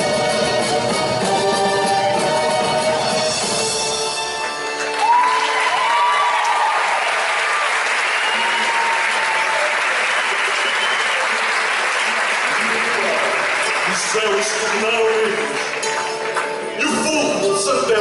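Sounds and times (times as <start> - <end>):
band playing a song: 0.0 - 5.2
crowd applauding: 4.2 - 17.4
crowd cheering: 4.5 - 15.9.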